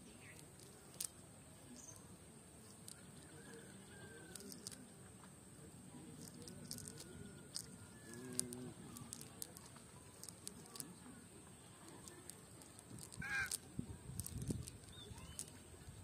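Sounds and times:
faint bird calls: 13.0s - 13.6s.

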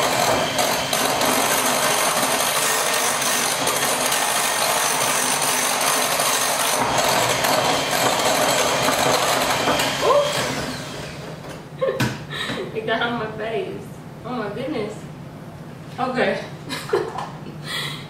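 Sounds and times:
electric hand mixer whirring: 0.0s - 11.4s.

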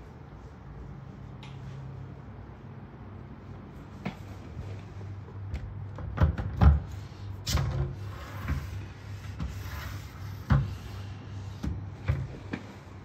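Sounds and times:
door sliding rub on track: 7.6s - 11.6s.

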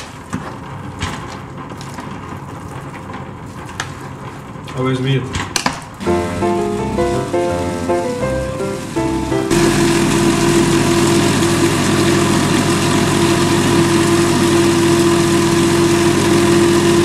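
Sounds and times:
blender motor humming: 6.0s - 17.0s.

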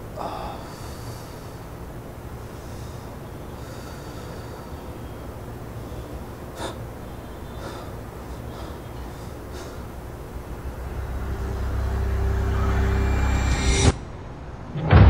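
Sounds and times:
man breathing hard and gasping: 2.4s - 10.4s
low rumble: 10.2s - 15.0s.

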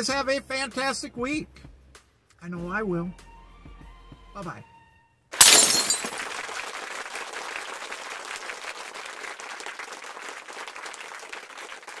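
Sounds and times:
crowd applauding: 6.2s - 12.0s.

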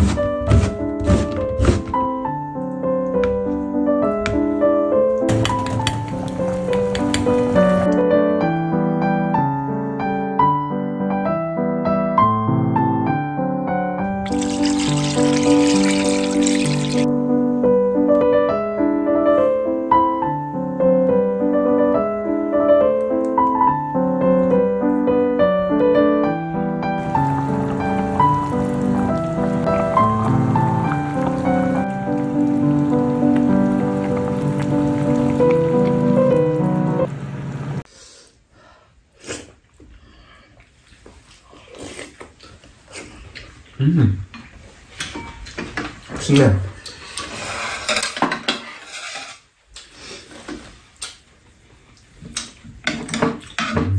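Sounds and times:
piano music: 0.0s - 37.9s
water pouring into a steel pot: 14.2s - 17.1s.

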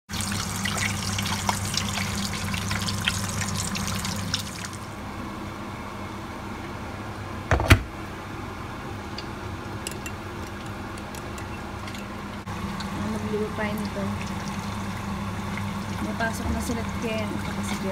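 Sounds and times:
meat frying in hot oil: 0.1s - 5.0s, 12.5s - 17.9s
loud clunk: 7.5s - 8.0s.

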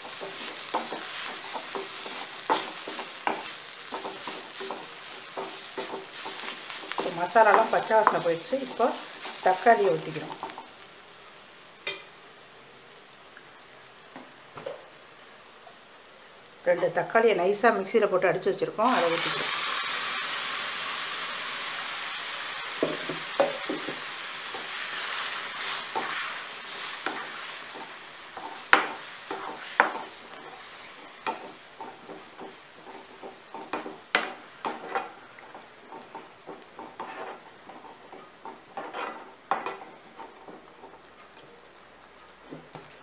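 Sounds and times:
tomato sizzling in hot oil: 0.0s - 43.0s
ladle scraping a pan: 36.8s - 40.4s.

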